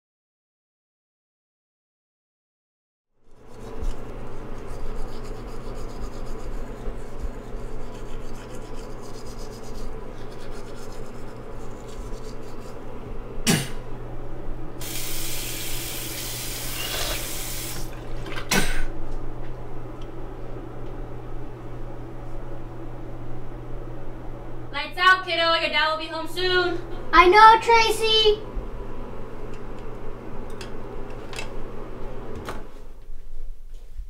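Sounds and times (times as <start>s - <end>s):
rubbing and scrubbing: 3.4s - 12.9s
water tap running: 14.8s - 18.3s.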